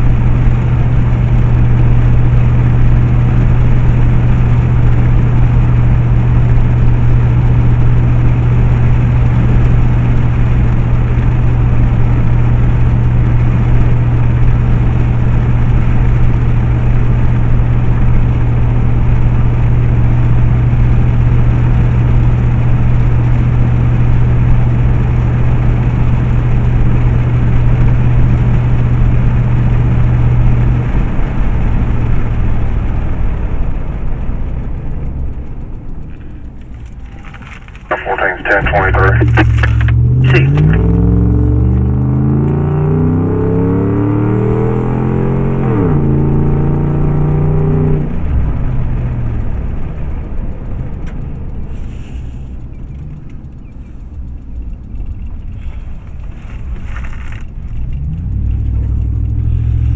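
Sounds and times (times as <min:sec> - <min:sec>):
vehicle engine drone: 0:00.0 - 0:59.9
tyre hiss: 0:51.7 - 0:52.6.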